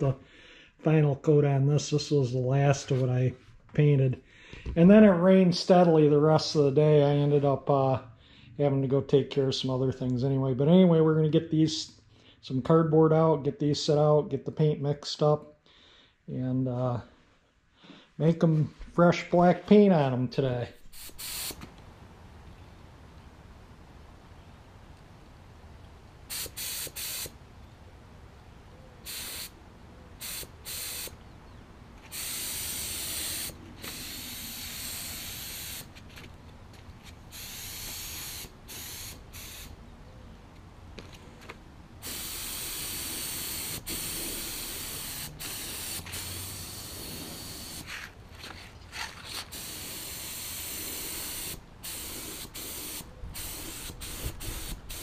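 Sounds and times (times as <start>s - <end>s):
spray gun air hiss: 20.9s - 21.6s, 26.3s - 27.4s, 29.0s - 29.6s, 30.2s - 31.2s, 32.1s - 36.0s, 37.3s - 39.8s, 42.0s - 48.0s, 49.5s - 55.0s.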